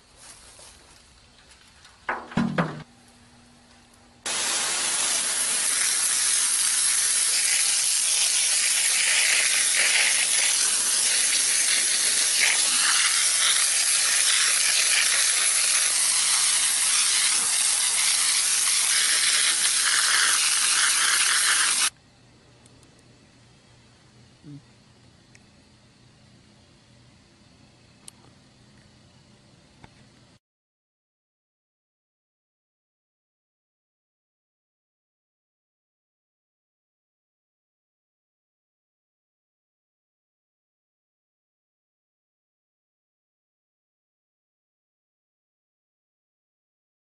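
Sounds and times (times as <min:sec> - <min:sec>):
brief thump: 0:02.1 - 0:02.9
hose water spraying: 0:04.3 - 0:22.0.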